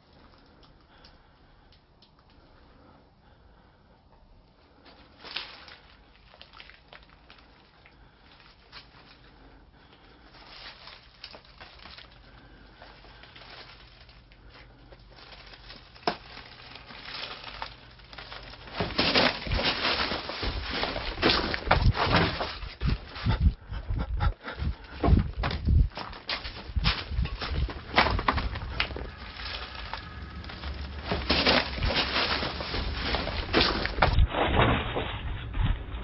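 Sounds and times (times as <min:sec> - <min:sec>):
footsteps on dry leaves: 0:10.3 - 0:14.3, 0:15.0 - 0:23.4, 0:25.8 - 0:35.3.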